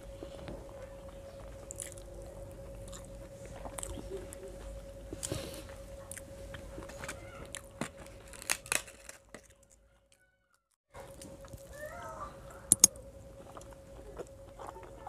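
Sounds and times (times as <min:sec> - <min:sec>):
faint hum: 0:00.0 - 0:15.0
chewing: 0:00.2 - 0:10.2, 0:12.5 - 0:15.0
crisp snaps: 0:07.0 - 0:09.7.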